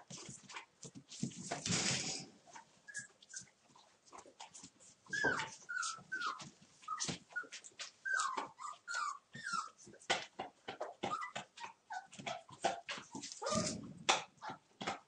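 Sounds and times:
puppies squeaking and yipping: 2.5s - 3.9s, 5.0s - 10.0s, 10.8s - 14.6s.

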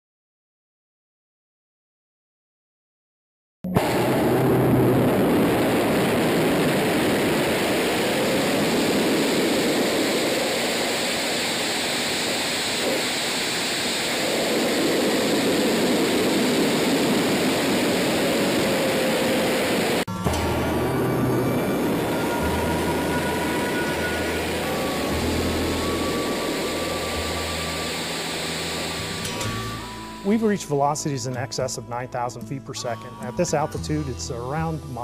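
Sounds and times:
rocket motor roar: 3.7s - 30.4s
rushing air: 3.8s - 30.3s.

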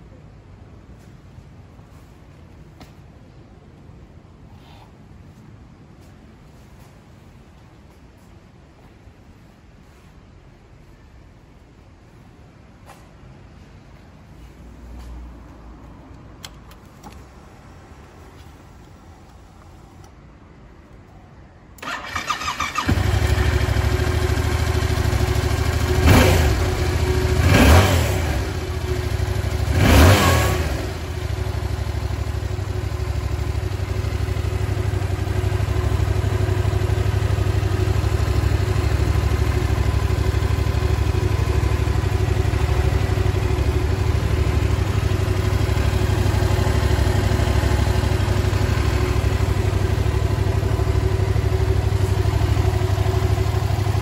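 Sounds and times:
motorcycle engine idling and revving: 21.8s - 54.0s.

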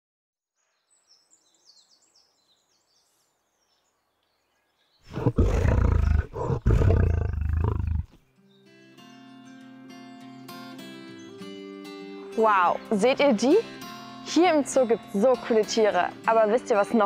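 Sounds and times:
big cat roaring: 5.1s - 8.1s.

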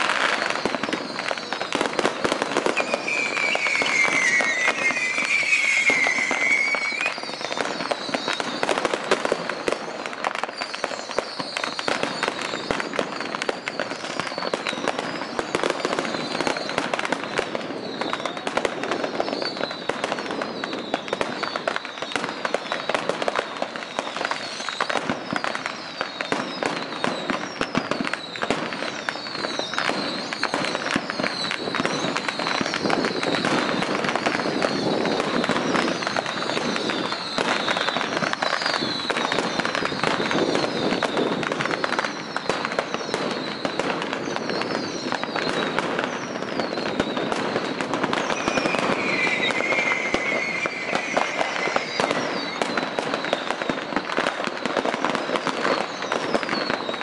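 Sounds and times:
firecrackers crackling: 0.0s - 57.0s
wavering whistle: 2.5s - 8.6s, 48.3s - 53.0s.

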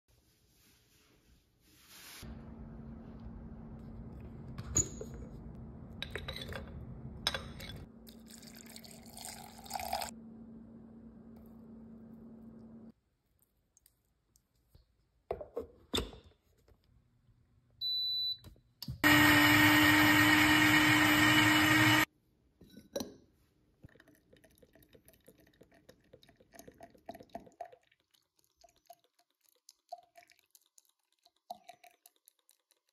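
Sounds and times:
blender motor: 19.0s - 22.1s.

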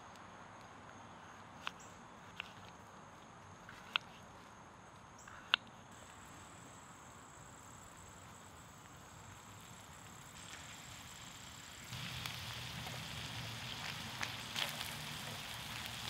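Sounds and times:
faint meat sizzle: 6.0s - 16.0s
high-pitched insect drone: 6.0s - 16.0s.

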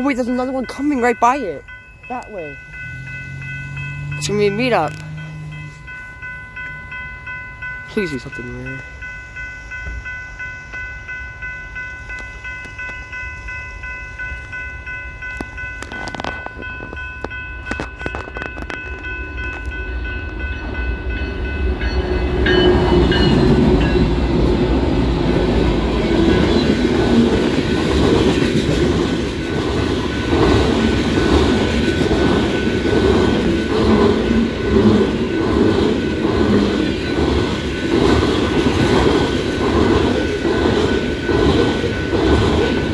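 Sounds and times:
diesel locomotive rumble: 0.0s - 13.2s, 13.8s - 42.9s
train horn chord: 2.8s - 6.1s
wheels clacking over rail joints: 21.4s - 42.9s.

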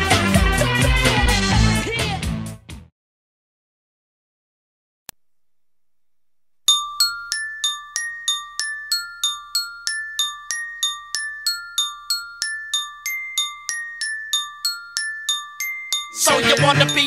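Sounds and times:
glockenspiel-like mallet melody: 6.7s - 17.0s.

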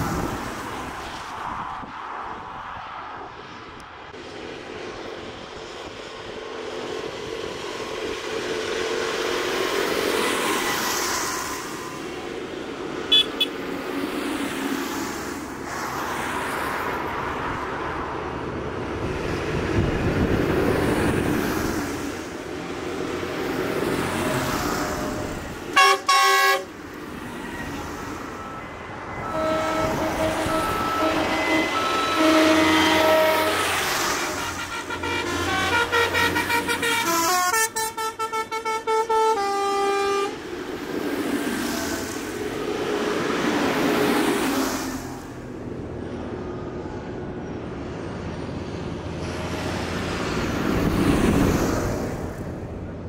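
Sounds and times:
tractors driving past: 3.2s - 53.0s
vehicle horn toots: 13.1s - 13.6s, 25.8s - 26.7s, 29.2s - 33.8s, 34.4s - 40.4s.

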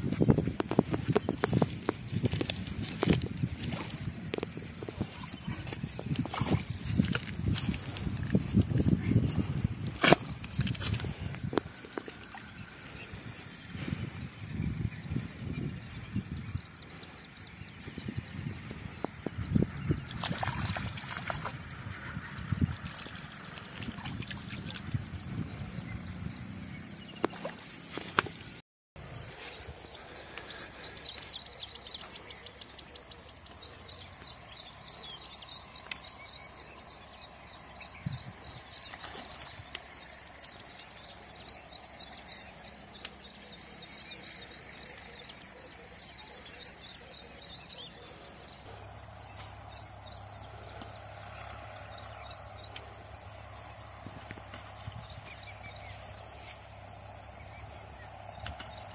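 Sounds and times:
birds chirping: 0.0s - 58.9s
insects buzzing: 0.0s - 58.9s
water splashing: 20.1s - 21.7s, 22.8s - 24.9s, 27.2s - 28.3s.

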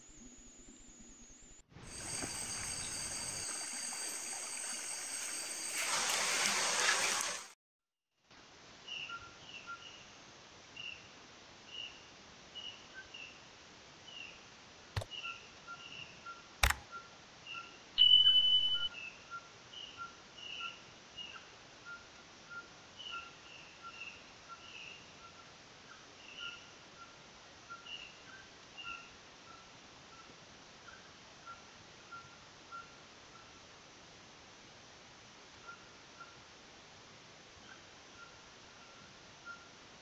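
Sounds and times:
stream hiss: 1.8s - 7.5s
short high chirps: 1.9s - 5.9s, 18.0s - 18.9s
mouse clicks: 16.6s - 16.8s.

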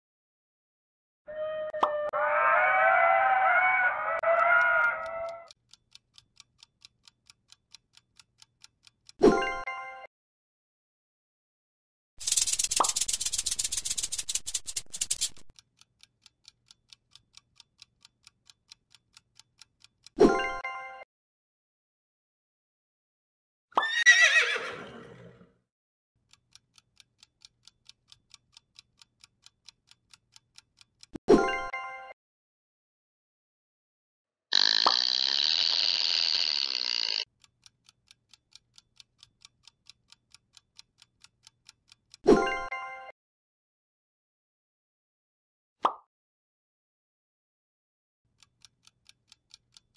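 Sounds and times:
countdown timer ticking: 3.9s - 9.9s
rattlesnake tail rattling: 12.2s - 15.4s.

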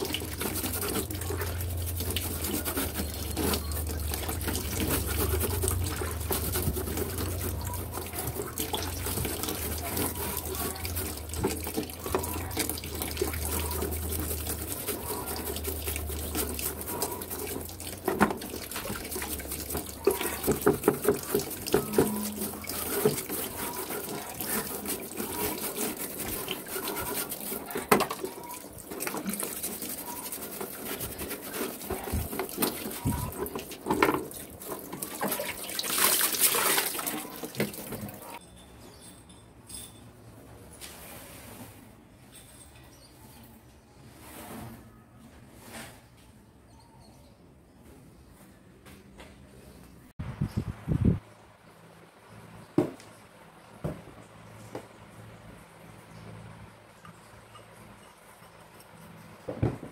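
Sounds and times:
brush bristles scratching: 0.0s - 38.4s
water sloshing and splashing: 0.0s - 38.4s.

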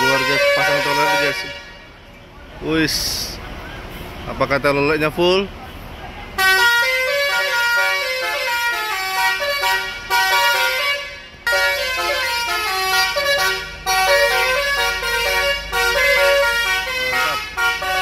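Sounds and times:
multi-tone bus horn tune: 0.0s - 2.1s, 6.4s - 18.0s.

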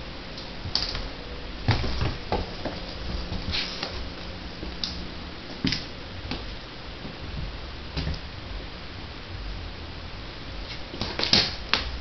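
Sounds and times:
kitten paws thumping on floor: 0.8s - 4.8s.

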